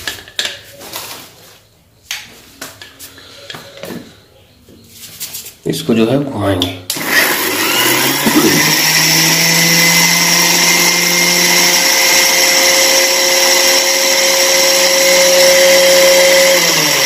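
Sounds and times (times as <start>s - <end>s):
mixer grinder motor grinding: 6.9s - 17.0s.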